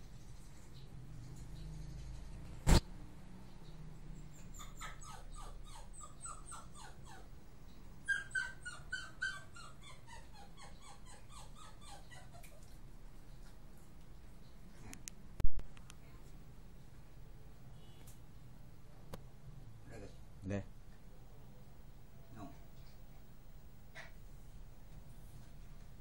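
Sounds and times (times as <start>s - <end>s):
puppy whimpering: 4.2s - 7.4s, 8.0s - 12.8s.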